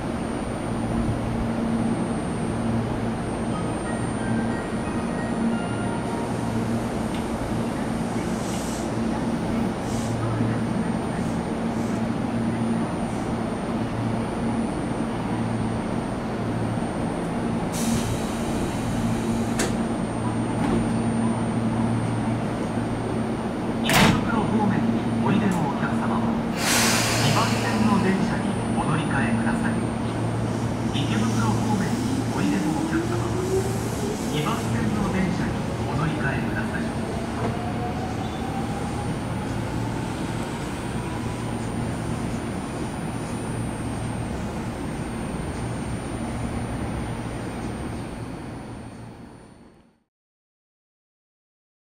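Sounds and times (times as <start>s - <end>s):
electric train equipment humming: 0.0s - 49.6s
train door click: 19.5s - 19.8s, 23.8s - 24.4s
air hiss: 26.5s - 27.9s.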